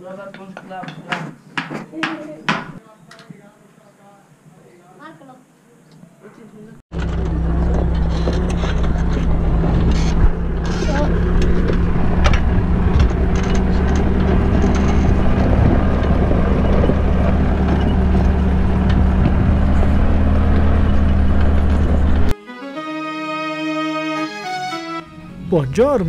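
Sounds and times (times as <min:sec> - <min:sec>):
sharp rattles: 0:06.9 - 0:22.3
tractor engine running: 0:06.9 - 0:22.3.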